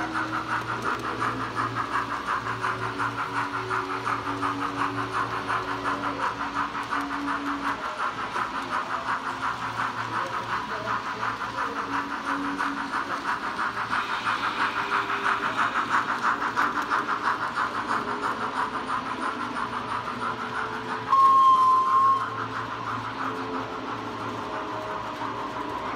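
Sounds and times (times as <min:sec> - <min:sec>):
model train steam chuffing: 0:00.0 - 0:25.9
train whistle blast: 0:21.1 - 0:22.4.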